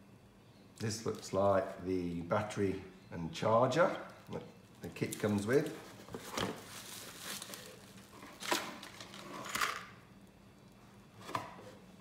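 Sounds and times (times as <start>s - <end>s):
bubble wrap crinkling: 3.9s - 9.6s.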